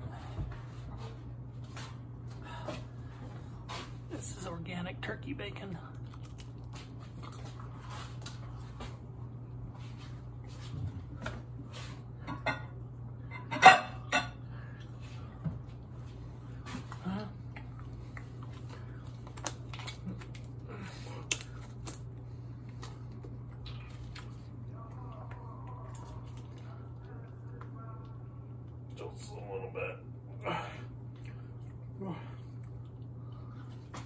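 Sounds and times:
steady low hum: 0.0s - 34.0s
kitchenware clatter: 12.2s - 14.4s.

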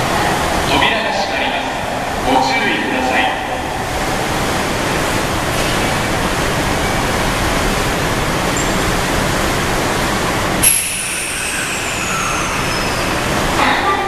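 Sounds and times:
loud steady hiss: 7.8s - 14.0s
high whine falling in pitch: 10.6s - 13.8s.

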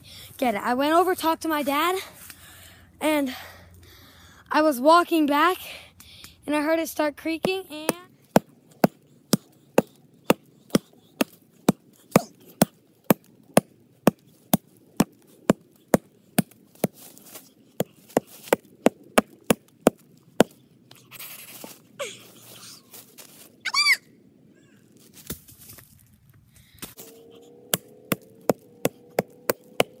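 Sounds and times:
hatchet chopping wood: 7.8s - 17.0s, 17.8s - 20.6s, 27.0s - 30.0s
rustling: 20.9s - 23.6s, 24.7s - 27.5s.

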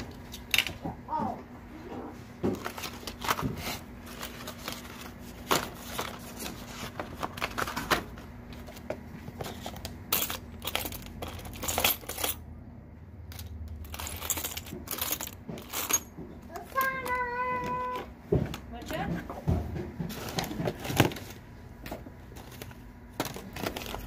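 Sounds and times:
keys and coins jingling: 10.1s - 12.4s, 13.3s - 17.2s.

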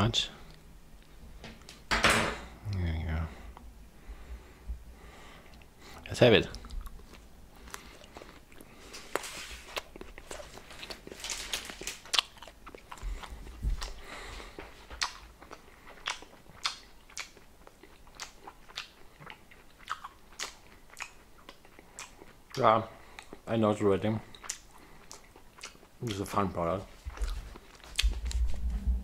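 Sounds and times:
chewing crunchy food: 5.4s - 23.6s, 24.2s - 28.6s.

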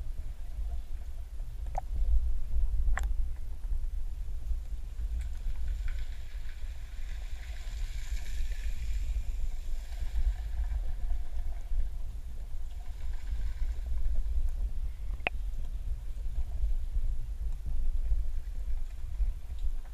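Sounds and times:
muffled underwater water rumble: 0.0s - 19.9s.

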